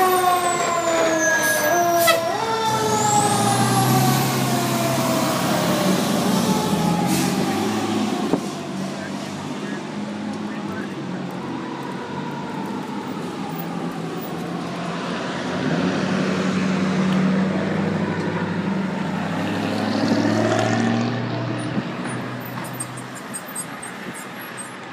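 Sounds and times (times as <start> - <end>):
traffic noise: 0.0 - 24.9
heavy vehicle engine revving: 2.3 - 11.0, 14.6 - 24.9.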